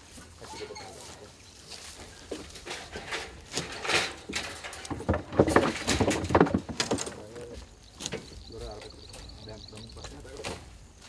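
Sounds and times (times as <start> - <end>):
wooden crate knocking on metal: 3.6 - 7.2.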